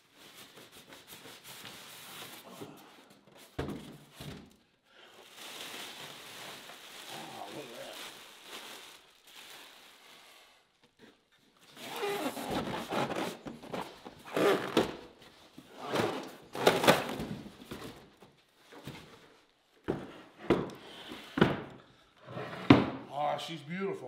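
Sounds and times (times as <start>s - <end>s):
cardboard and foam rustling: 0.0s - 20.4s.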